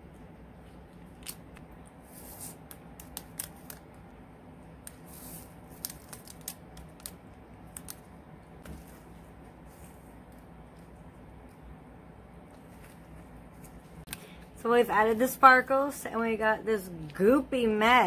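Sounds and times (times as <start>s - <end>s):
plastic packet crinkling: 5.6s - 8.0s.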